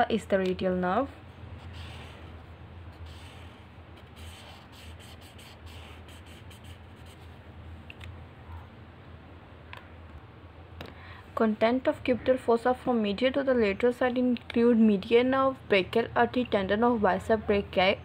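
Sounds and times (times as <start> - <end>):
low steady hum: 0.0 - 18.0
marker rubbing on paper: 1.5 - 7.3.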